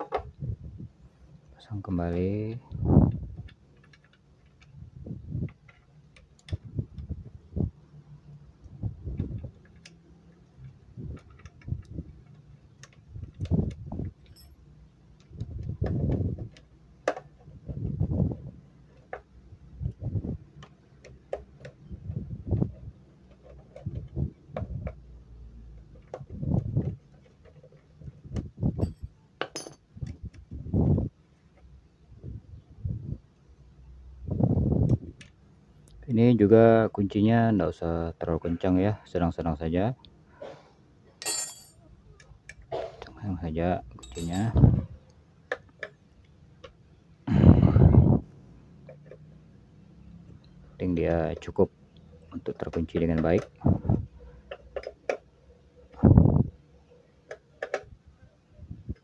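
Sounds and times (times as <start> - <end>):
wrench and bolts clinking on metal cover: 14.2 - 14.7, 28.8 - 29.9, 41.2 - 41.8, 43.9 - 44.6.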